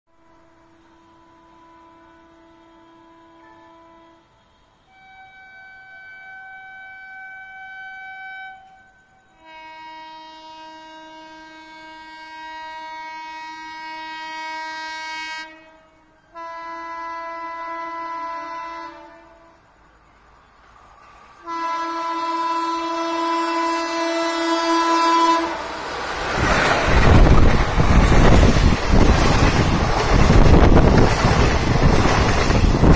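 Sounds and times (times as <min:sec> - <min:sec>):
train horn blasts: 0:00.1 - 0:19.9, 0:21.4 - 0:25.8
train passing rumble: 0:00.2 - 0:32.9.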